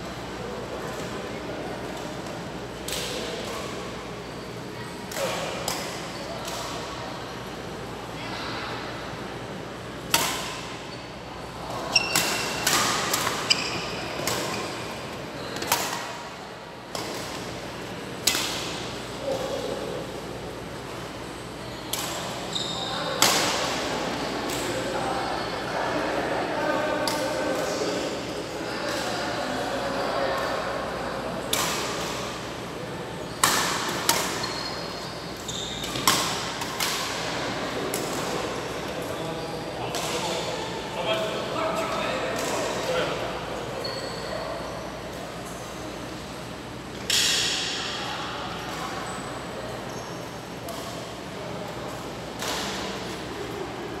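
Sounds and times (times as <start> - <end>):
court shoes squeaking: 10.0 - 19.9, 20.9 - 25.7, 33.1 - 40.9, 42.1 - 46.0, 48.6 - 53.3
rackets hitting shuttlecock: 10.1 - 10.7, 18.2 - 18.9, 23.2 - 23.8, 33.4 - 34.4, 35.8 - 38.3
rackets striking shuttlecock: 10.1 - 10.7, 35.8 - 37.3.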